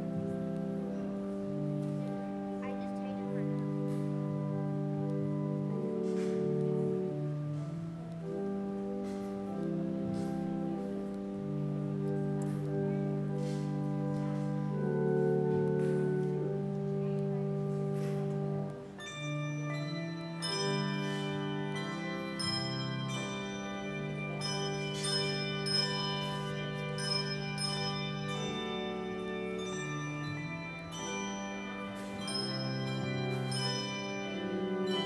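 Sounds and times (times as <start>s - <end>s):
handbell choir ringing: 17.7s - 35.0s.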